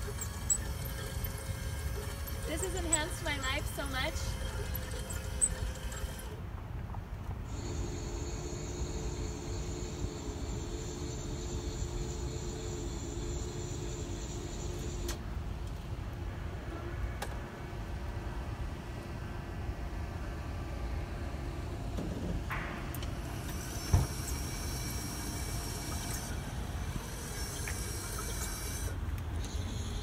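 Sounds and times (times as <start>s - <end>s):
high thin whine: 0.0s - 6.4s
electric crane running: 0.0s - 6.5s, 7.4s - 30.0s
thump: 22.0s - 23.0s, 23.9s - 24.2s.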